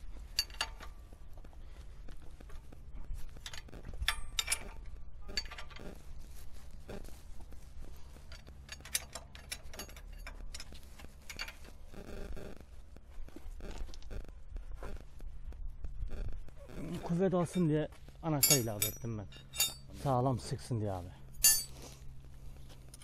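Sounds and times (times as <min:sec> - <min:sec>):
wrenches clicking on bolt: 0:08.3 - 0:11.6.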